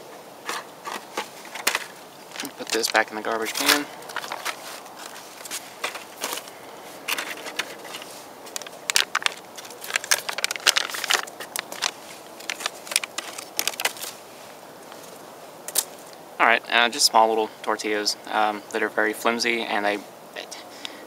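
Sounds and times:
plastic packaging crinkling: 0.5 - 16.2.

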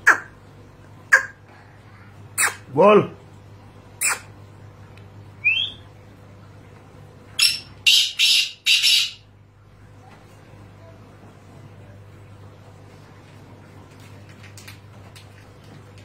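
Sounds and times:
harsh grating bird calls: 4.0 - 4.4, 7.4 - 9.3
bird chirp: 7.4 - 9.2.

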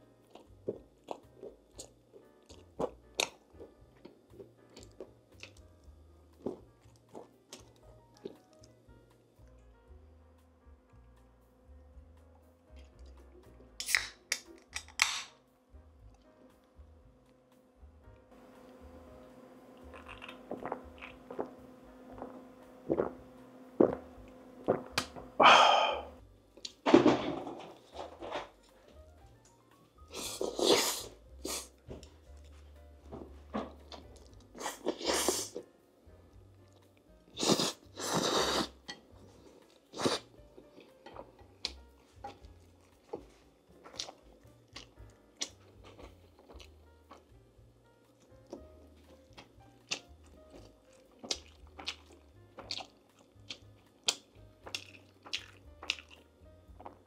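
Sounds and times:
soft background music: 0.0 - 57.0
wet chewing and smacking: 0.2 - 8.8, 19.8 - 23.2, 36.5 - 47.4, 48.1 - 57.0
faint steady hum: 15.4 - 26.8.

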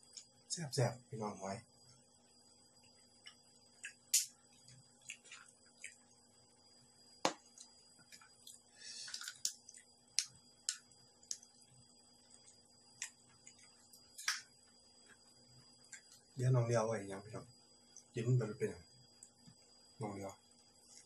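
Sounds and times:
person chewing with wet smacks: 2.8 - 6.3, 7.4 - 11.5, 12.3 - 14.4, 15.0 - 16.4.

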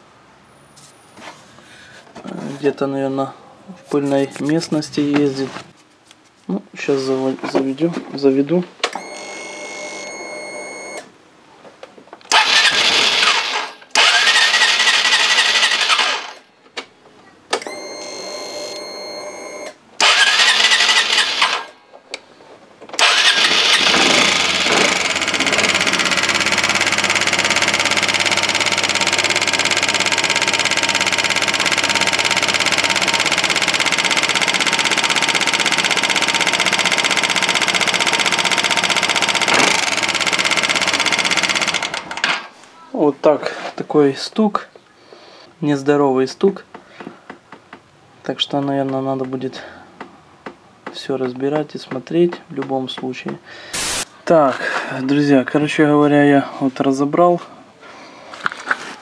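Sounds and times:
scooter engine cranking: 12.3 - 16.4, 20.0 - 21.7, 23.0 - 42.4
scooter engine running with knock: 23.1 - 42.2.

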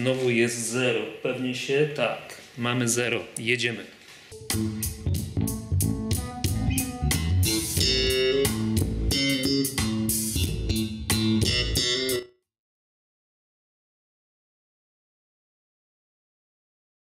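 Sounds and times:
music through speakers: 4.3 - 12.3.

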